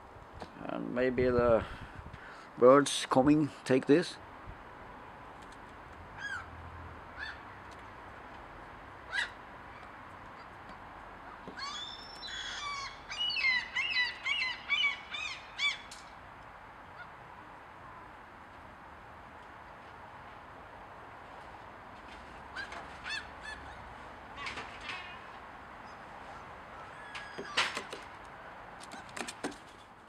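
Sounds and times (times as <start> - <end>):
magpie calling harshly: 6.2 - 6.5, 7.2 - 7.4, 9.1 - 9.4, 11.6 - 15.9, 22.5 - 23.8.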